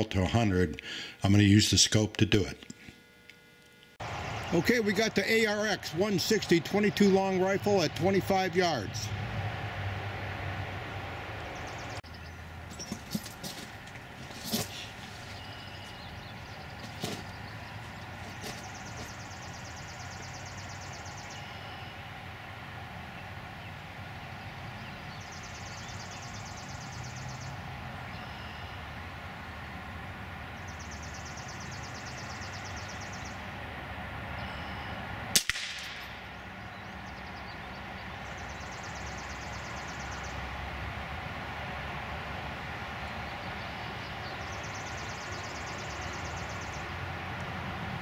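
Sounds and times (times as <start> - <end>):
steady background hum: 0.0 - 48.0
rifle shot crack: 35.3 - 36.3.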